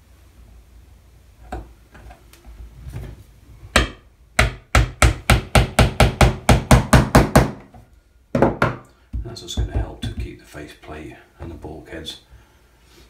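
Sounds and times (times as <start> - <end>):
hammer tapping pin into wood: 3.8 - 7.6.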